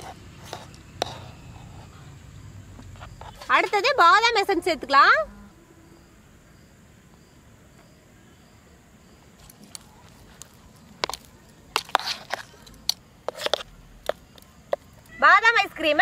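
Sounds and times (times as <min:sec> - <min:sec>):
faint outdoor background: 0:00.0 - 0:16.0
squishing and scraping in foil tray: 0:09.4 - 0:14.2.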